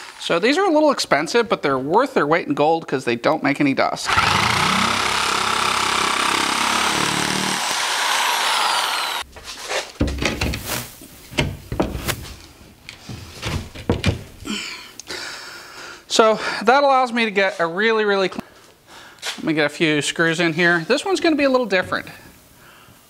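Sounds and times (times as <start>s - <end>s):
electric shear cutting board: 4.1s - 9.3s
knocks and thumps of panel: 11.4s - 12.1s, 13.4s - 14.3s.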